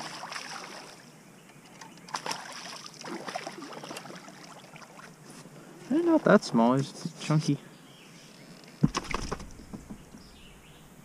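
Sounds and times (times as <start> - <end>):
fish splashing at water surface: 2.1 - 5.1.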